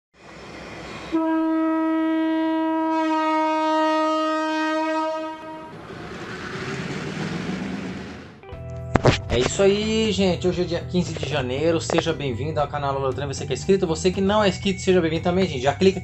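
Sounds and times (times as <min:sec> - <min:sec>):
train rumbling past: 0:00.2 - 0:02.0, 0:05.1 - 0:08.4
locomotive horn: 0:01.1 - 0:05.8.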